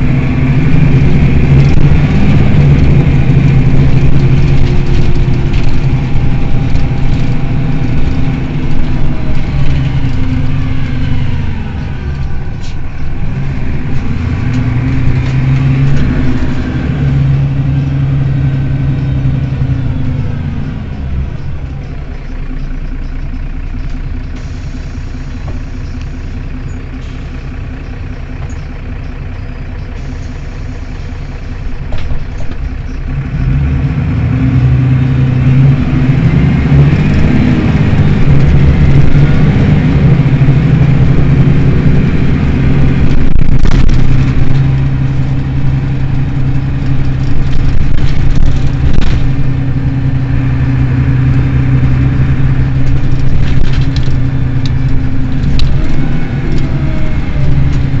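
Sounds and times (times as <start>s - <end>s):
bus engine running: 0.0s - 58.0s.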